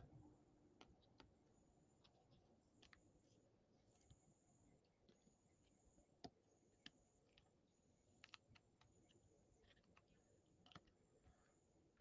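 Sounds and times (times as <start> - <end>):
faint sharp clicks of cards: 8.2 - 11.4.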